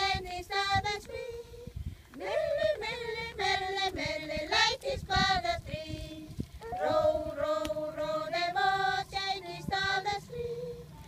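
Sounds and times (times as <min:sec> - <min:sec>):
group of women singing: 0:00.0 - 0:11.0.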